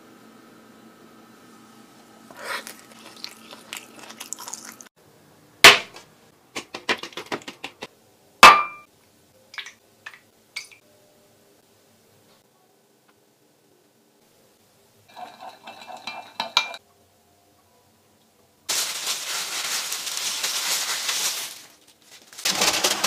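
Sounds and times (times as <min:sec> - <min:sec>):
glass bowl knocking on stone countertop: 0:08.4 - 0:08.8
spoon clinking against glass bowl: 0:15.1 - 0:16.8.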